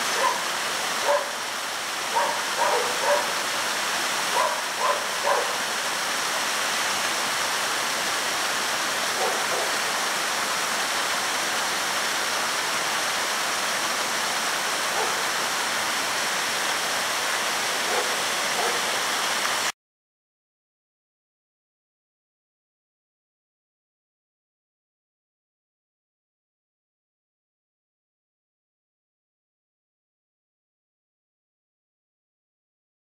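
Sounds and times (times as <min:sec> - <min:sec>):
water gushing and splashing: 0:00.0 - 0:19.7
dog barking: 0:00.1 - 0:01.4, 0:02.1 - 0:03.4, 0:04.3 - 0:05.6, 0:09.2 - 0:09.8, 0:15.0 - 0:15.2, 0:17.9 - 0:19.0.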